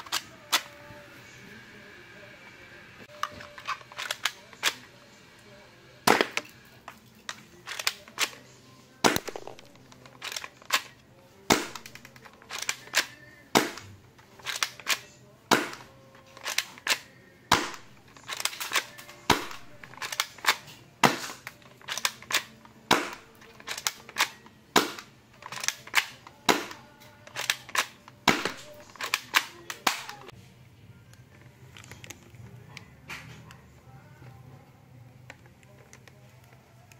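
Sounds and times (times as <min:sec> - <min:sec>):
airsoft pistol shots: 0:06.1 - 0:06.5, 0:11.5 - 0:12.0, 0:13.6 - 0:13.9, 0:15.5 - 0:15.9, 0:17.5 - 0:17.9, 0:22.9 - 0:23.2, 0:24.8 - 0:25.0, 0:26.5 - 0:26.8, 0:28.3 - 0:28.8.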